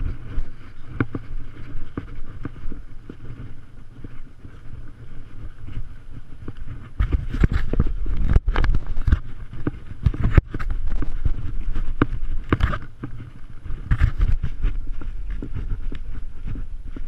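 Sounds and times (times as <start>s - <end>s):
horse hooves on dirt trail: 0.0s - 17.0s
rider's gear rattling: 0.0s - 17.0s
wind rumble on microphone: 0.0s - 17.0s.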